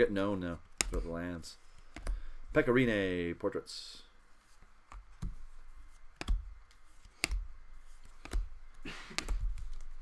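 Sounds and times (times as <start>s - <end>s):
cards rustling: 4.4s - 10.0s
cards clicking: 6.1s - 10.0s.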